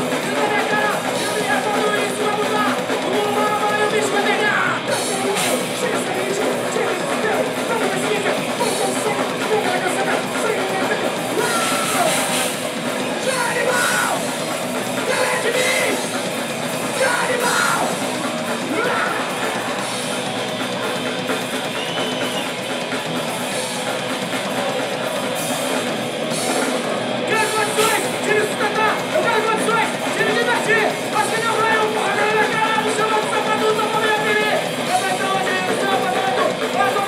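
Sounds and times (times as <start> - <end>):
shouted vocals: 0.0 - 12.4, 13.1 - 14.3, 15.0 - 16.2, 16.8 - 20.0
punk band playing live: 0.0 - 37.0.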